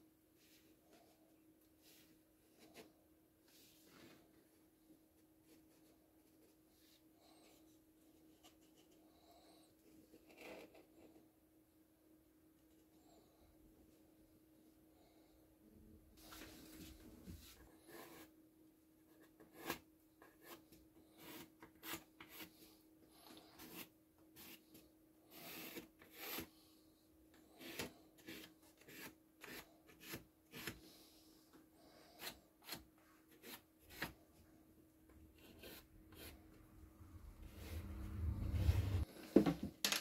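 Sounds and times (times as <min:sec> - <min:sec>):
low hum: 0:36.1 - 0:39.0.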